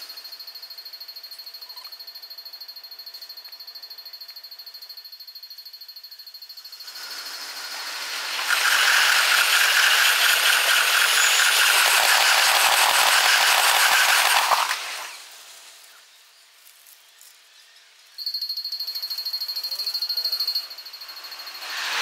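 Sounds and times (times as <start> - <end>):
sped-up train wheel rattle: 6.8 - 15.7.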